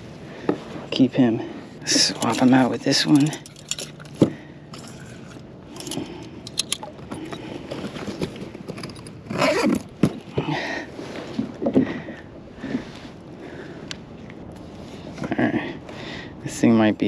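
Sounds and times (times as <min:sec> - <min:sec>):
clips and gear clicking: 0:05.7 - 0:07.4, 0:08.0 - 0:10.2
scraping and rustling on plastic: 0:07.1 - 0:10.4.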